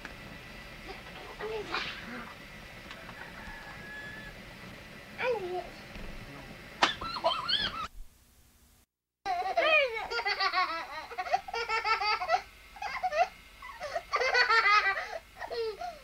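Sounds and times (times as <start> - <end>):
young children laughing: 6.8 - 7.9, 9.3 - 16.0.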